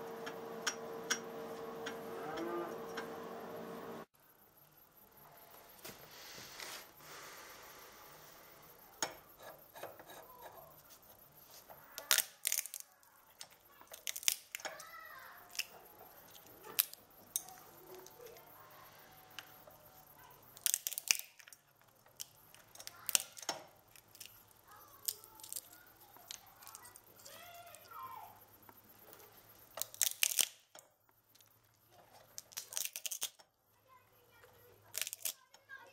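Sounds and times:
walnut shells cracking: 12.0s - 18.3s, 20.5s - 27.9s, 29.2s - 33.5s, 34.9s - 35.6s.

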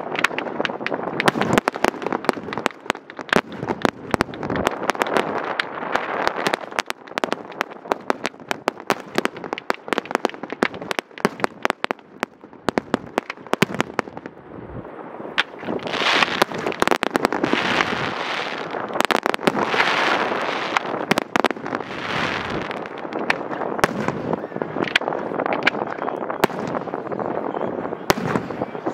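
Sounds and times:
fireworks cracking and banging: 0.0s - 14.4s, 15.0s - 28.9s
dense crackling hiss of fireworks: 0.0s - 28.9s.

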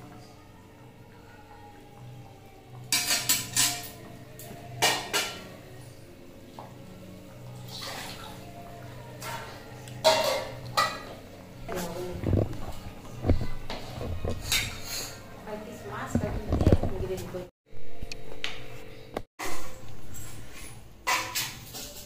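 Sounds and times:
steel cookware clattering: 2.9s - 4.0s, 10.0s - 11.2s, 13.8s - 15.3s, 20.1s - 22.0s.

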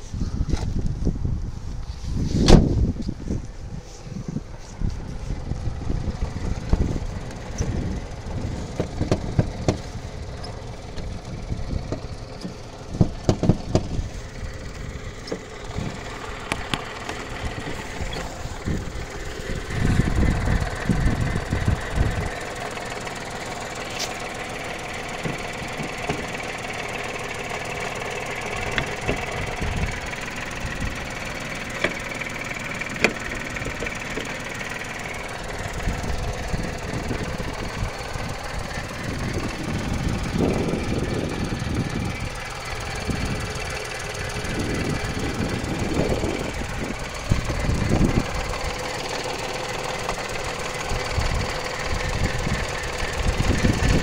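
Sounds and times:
car engine idling: 0.0s - 54.0s
phone handling rumble and knocks: 4.8s - 54.0s.

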